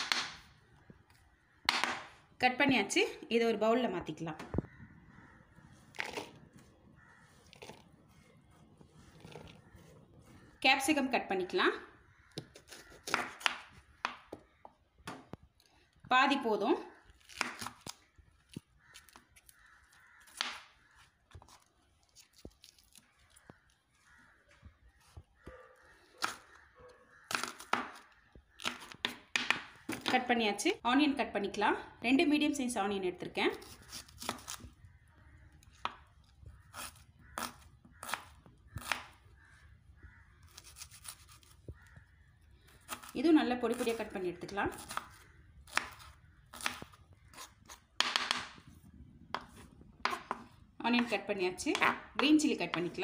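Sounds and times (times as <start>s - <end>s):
knife cutting pepper: 33.5s - 34.7s, 40.5s - 42.0s
knife slicing onion: 40.5s - 41.6s, 44.7s - 48.4s, 49.4s - 53.0s.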